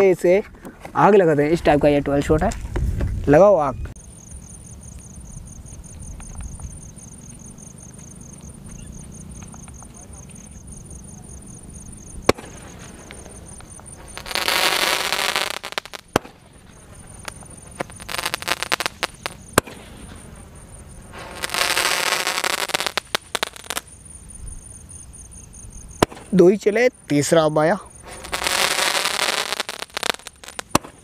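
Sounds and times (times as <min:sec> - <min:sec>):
insects trilling: 0:03.4 - 0:31.0
firework rushing hiss: 0:11.6 - 0:24.0, 0:25.9 - 0:26.4, 0:27.9 - 0:31.0
firework crackles and pops: 0:11.9 - 0:24.0, 0:26.0 - 0:26.6, 0:28.0 - 0:31.0
firework shots cracking: 0:12.0 - 0:20.5, 0:21.1 - 0:23.9, 0:26.0 - 0:26.4, 0:28.0 - 0:31.0.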